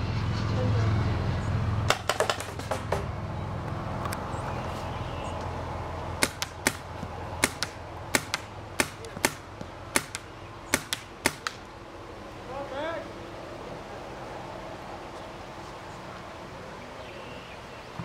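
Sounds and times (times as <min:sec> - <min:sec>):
paintball marker firing: 0:06.2 - 0:11.7.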